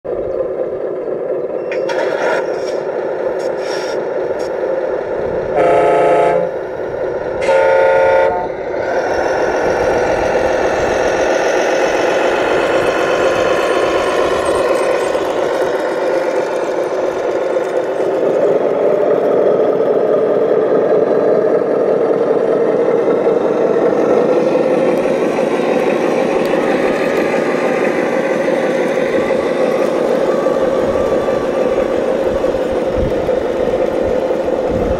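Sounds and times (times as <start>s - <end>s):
simulated diesel engine running: 0.0s - 34.9s
air horn blasts: 5.6s - 6.6s, 7.4s - 8.5s.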